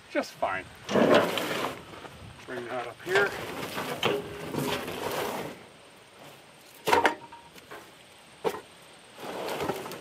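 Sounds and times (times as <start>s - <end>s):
plastic tank scraping on metal: 0.9s - 1.9s, 3.1s - 5.6s.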